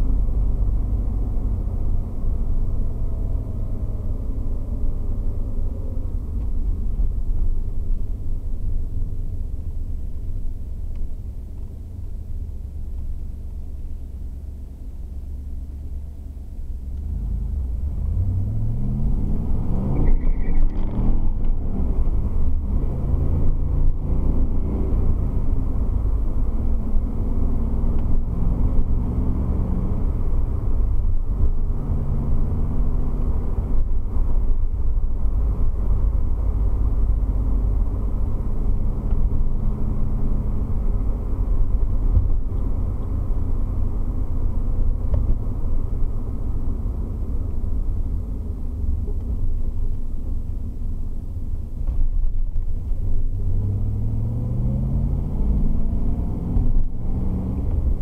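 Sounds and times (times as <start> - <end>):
car engine drone from cabin: 0.0 - 58.0
engine revving up: 17.1 - 25.3, 53.3 - 58.0.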